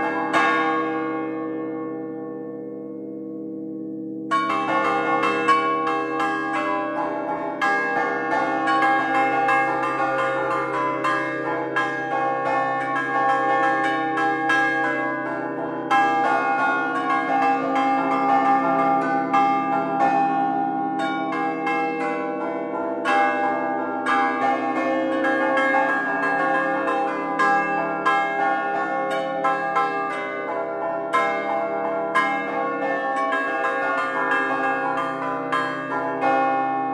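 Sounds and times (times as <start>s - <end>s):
church bells clanging: 0.0s - 36.9s.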